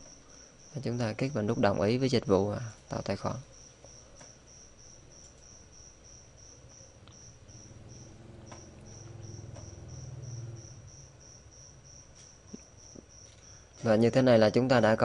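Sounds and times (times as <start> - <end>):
cricket chirping: 0.0 - 15.0
low hum: 6.7 - 12.6.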